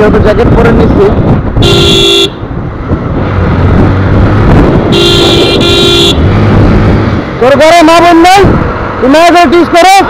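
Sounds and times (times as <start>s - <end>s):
wind and road noise: 0.0s - 10.0s
motorcycle engine: 1.4s - 9.1s
vehicle horn blowing: 1.6s - 2.4s, 4.9s - 6.2s.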